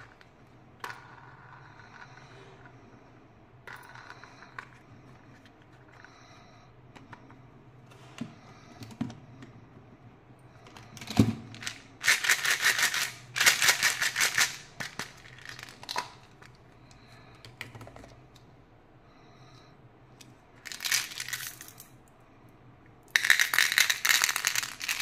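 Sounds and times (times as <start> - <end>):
candies rattling in plastic egg: 11.5 - 16.4, 20.6 - 21.9, 23.1 - 25.0.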